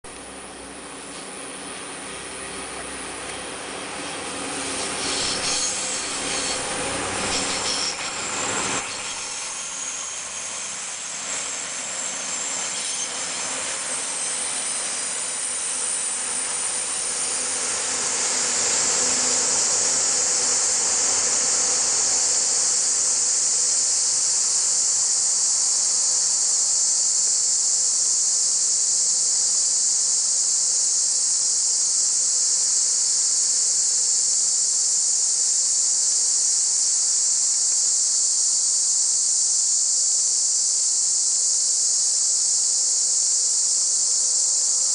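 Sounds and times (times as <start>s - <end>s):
diesel train passing: 0.1s - 21.8s
cicadas buzzing: 0.1s - 44.9s.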